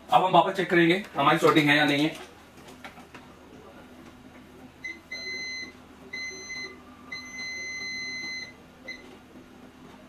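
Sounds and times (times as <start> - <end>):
multimeter beeps: 4.8 - 9.1.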